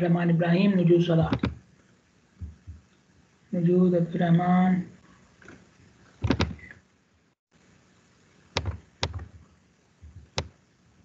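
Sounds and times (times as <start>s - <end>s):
computer mouse clicking: 1.3s - 1.6s, 6.2s - 6.8s, 8.6s - 9.4s, 10.0s - 10.5s.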